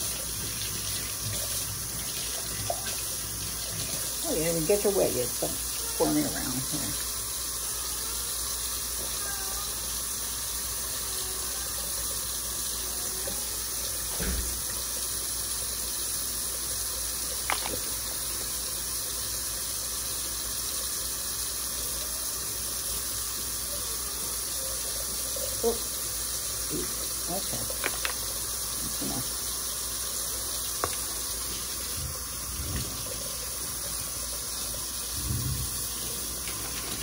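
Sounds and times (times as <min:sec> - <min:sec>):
faucet running into steel sink: 0:00.0 - 0:37.0.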